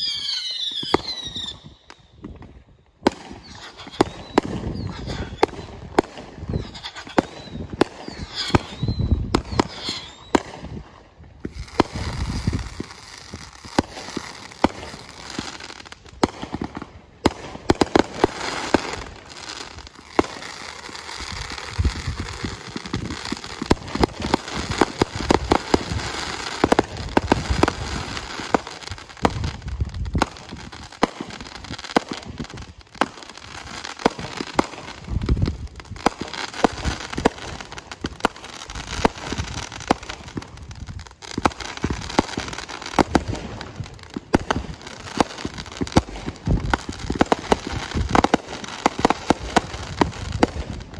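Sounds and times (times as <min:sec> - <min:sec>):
fireworks bursting: 0:00.0 - 0:50.9
fireworks crackle: 0:00.0 - 0:50.9.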